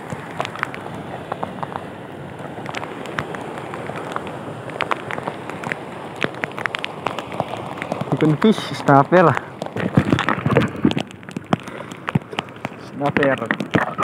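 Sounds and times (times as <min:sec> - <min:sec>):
choppy sea water and surf: 0:00.0 - 0:14.0
sharp clicks and ticks: 0:04.0 - 0:14.0.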